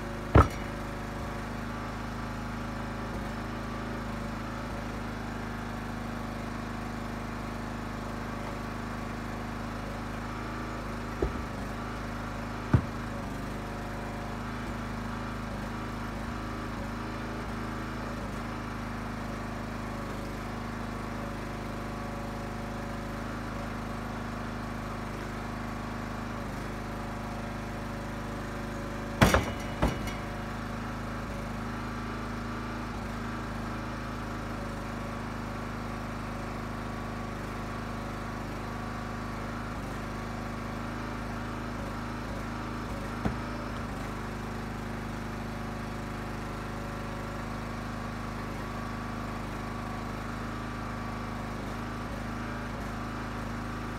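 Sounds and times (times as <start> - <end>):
log splitter engine running: 0.0 - 53.9
sharp knocks: 0.3 - 1.4, 11.1 - 11.8, 12.6 - 13.3, 29.2 - 30.5, 43.2 - 43.9.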